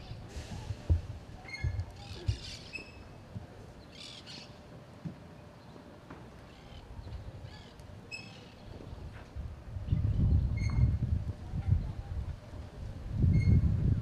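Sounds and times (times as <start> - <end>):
birds calling harshly: 1.5 - 3.1, 3.8 - 4.6.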